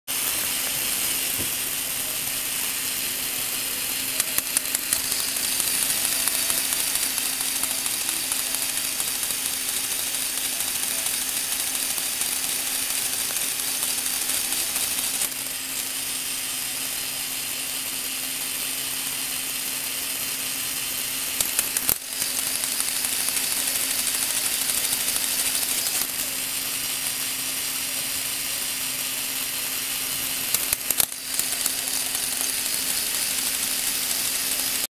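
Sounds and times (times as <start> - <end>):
motor driving whirring gears: 0.1 - 34.9
quick clicks: 2.8 - 16.1, 21.0 - 27.3, 30.1 - 34.9.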